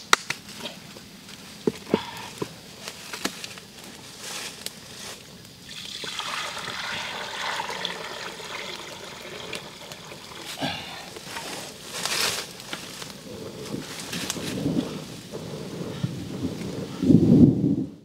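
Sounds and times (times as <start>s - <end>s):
water pouring into pot: 5.6s - 10.6s.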